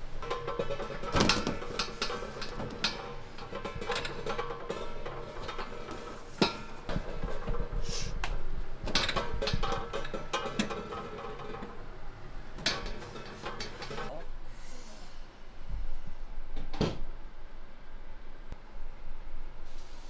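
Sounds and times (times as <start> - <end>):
dishes and utensils knocking: 0.2 - 7.7, 8.9 - 11.8, 12.6 - 14.2.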